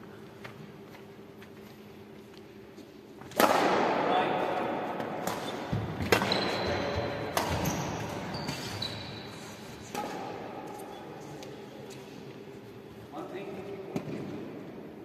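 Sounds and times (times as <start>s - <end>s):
badminton racket hitting shuttlecock: 7.3s - 8.7s.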